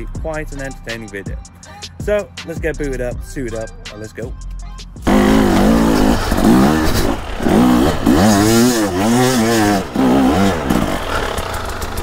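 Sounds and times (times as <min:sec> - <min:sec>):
dirt bike engine revving: 0:05.0 - 0:12.0.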